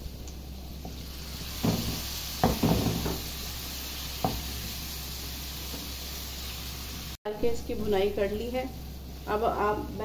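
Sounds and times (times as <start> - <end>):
potatoes sizzling in frying pan: 0.0 - 10.0
spatula knocking against pan: 1.6 - 3.2.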